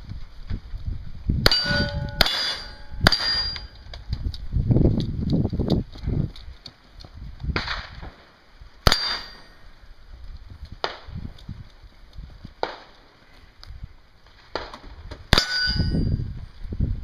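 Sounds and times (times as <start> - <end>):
short metallic ring: 1.5 - 3.8, 8.9 - 9.6, 15.4 - 16.3.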